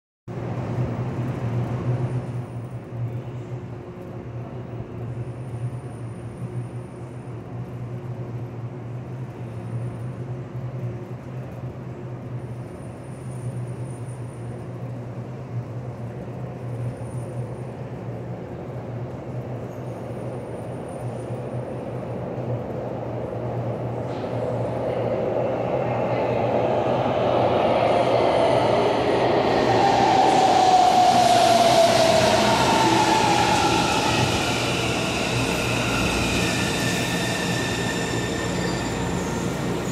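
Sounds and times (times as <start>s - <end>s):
subway train rumbling: 0.3s - 39.9s
low platform hum: 21.1s - 38.2s
train brakes whining: 28.4s - 39.9s.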